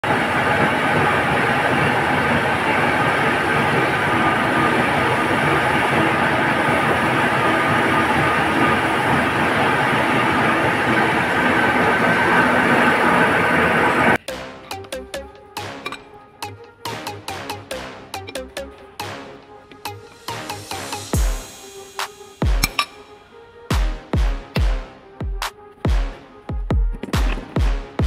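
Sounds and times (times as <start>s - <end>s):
lathe grinding metal: 0.0s - 14.2s.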